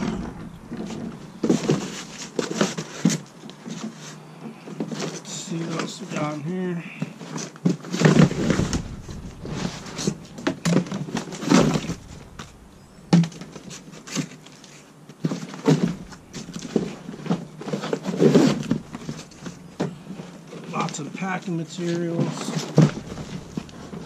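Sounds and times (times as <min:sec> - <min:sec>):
cardboard and packing rustling: 0:00.0 - 0:06.3, 0:06.9 - 0:24.0
sharp knocks: 0:08.1 - 0:14.2.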